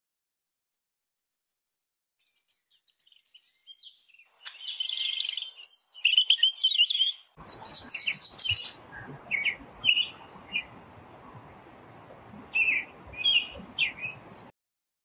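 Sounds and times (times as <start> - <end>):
small songbirds singing: 2.2 - 14.5
background hiss: 7.4 - 14.5.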